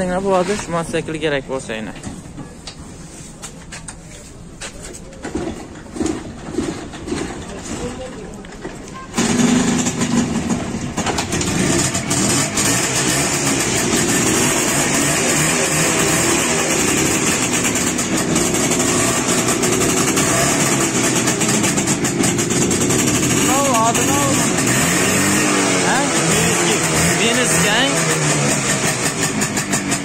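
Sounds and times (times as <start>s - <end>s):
two-stroke motorcycle engine running: 9.2s - 30.0s.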